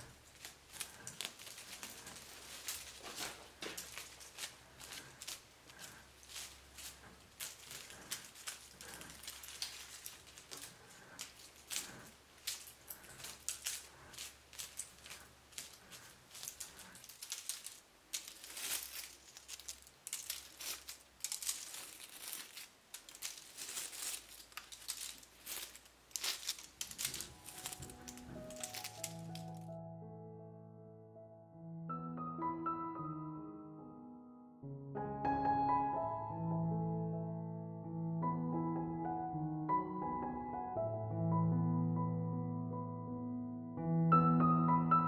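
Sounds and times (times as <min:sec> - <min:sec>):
dry leaves and twigs rustling: 0:00.0 - 0:29.7.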